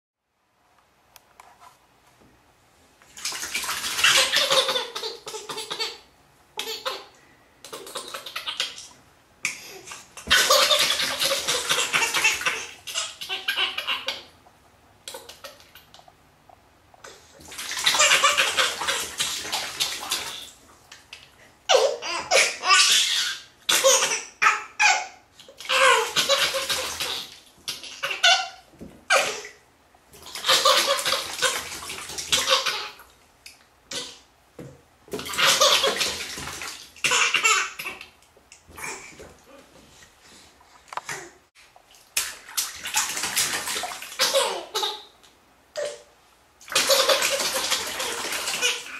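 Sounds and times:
bathwater splashing: 3.0s - 6.0s, 10.0s - 13.9s, 17.4s - 21.4s, 25.4s - 28.2s, 30.1s - 33.2s, 35.1s - 39.4s, 41.6s - 45.0s, 46.6s - 48.9s
baby laughing: 3.9s - 8.9s, 9.5s - 14.3s, 15.1s - 15.9s, 17.8s - 20.4s, 21.1s - 29.6s, 30.3s - 33.0s, 35.3s - 36.4s, 37.0s - 38.2s, 44.1s - 45.1s, 46.7s - 48.9s.

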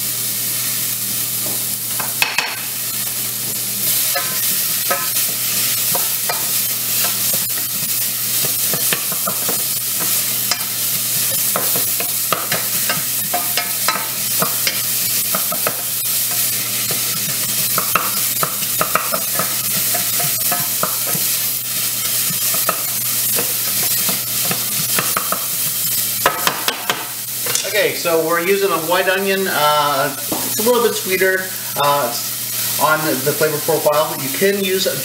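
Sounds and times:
onions sizzling: 0.0s - 35.0s
spatula scraping a pan: 3.9s - 26.4s.

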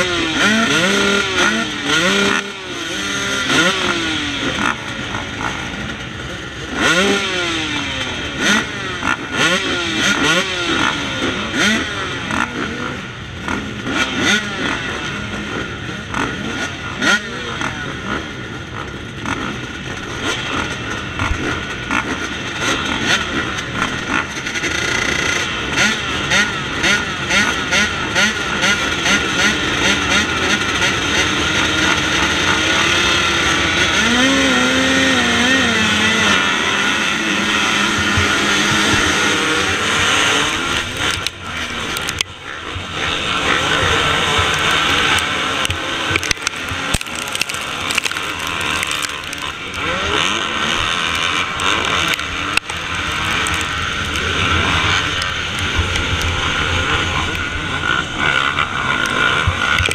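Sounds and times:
dirt bike engine revving: 0.0s - 59.9s
dirt bike engines racing: 0.0s - 59.9s.

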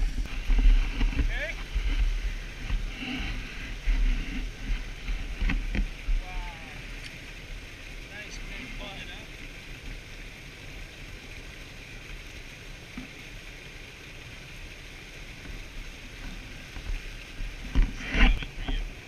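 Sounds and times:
river current rushing: 0.0s - 19.0s.

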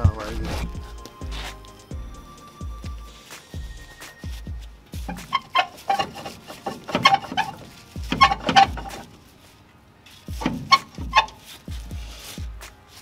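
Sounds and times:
metallic knocks on brake drum: 5.1s - 9.1s.

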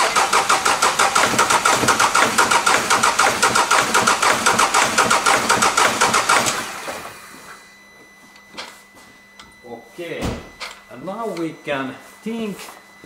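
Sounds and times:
diesel engine cranking: 0.0s - 7.0s.

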